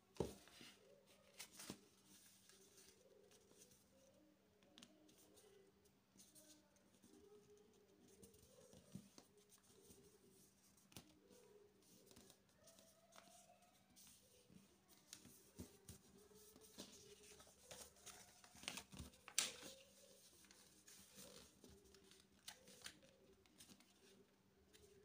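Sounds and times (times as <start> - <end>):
paper rustling and crinkling: 0.2 - 3.9, 8.2 - 25.0
paper crackles: 14.9 - 25.0.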